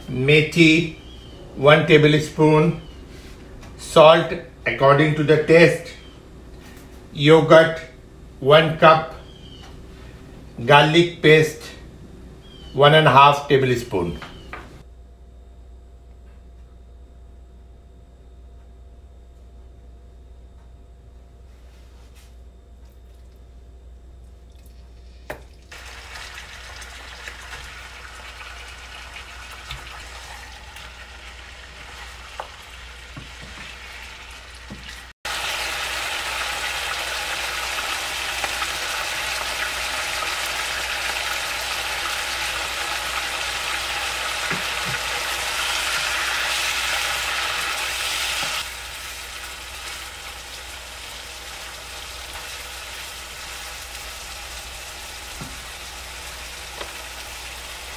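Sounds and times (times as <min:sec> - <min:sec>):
chicken sizzling in oil: 0:25.7 - 0:57.9.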